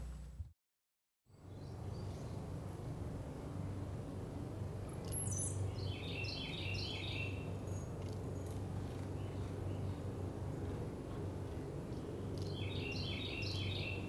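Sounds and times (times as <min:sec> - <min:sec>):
steady low hum: 0:00.0 - 0:00.5, 0:01.3 - 0:14.0
small bird chirping: 0:05.0 - 0:10.0, 0:12.4 - 0:14.0.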